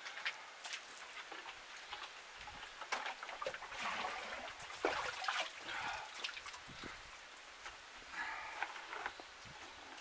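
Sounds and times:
water sloshing in bucket: 0.7 - 6.7.

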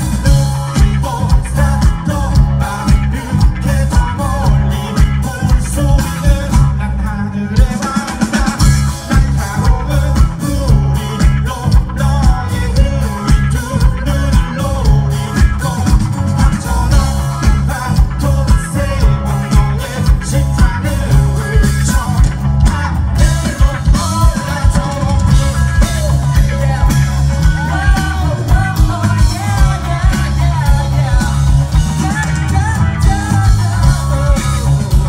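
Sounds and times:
live rock band playing: 0.0 - 35.0
man singing: 0.0 - 35.0.

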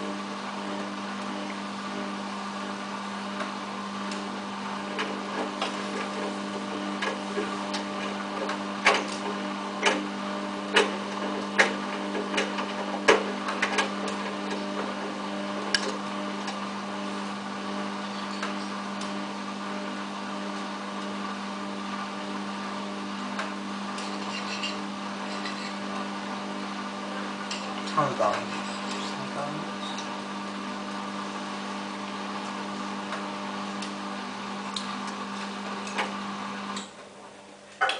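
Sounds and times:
washing machine drum humming: 0.0 - 22.2.

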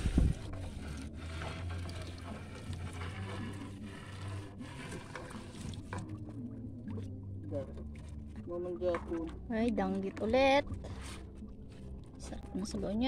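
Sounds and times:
water splashing and dripping: 0.0 - 9.4.

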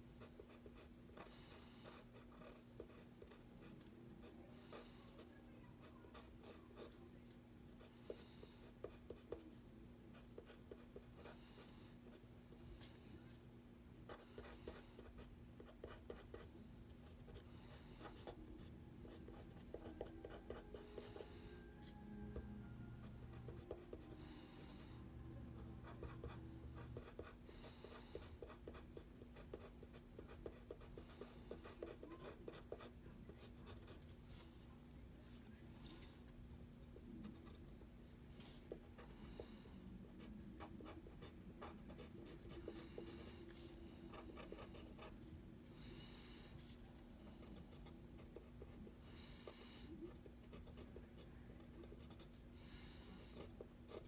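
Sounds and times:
pencil scratching on paper: 0.2 - 7.0, 7.8 - 9.5, 10.1 - 12.2, 14.0 - 21.3, 25.6 - 34.4, 37.2 - 37.7, 38.4 - 45.3, 47.4 - 54.0.

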